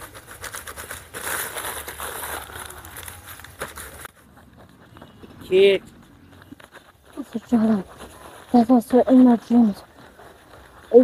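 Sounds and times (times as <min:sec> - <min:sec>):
paper rustling and crackling: 0:00.0 - 0:04.1.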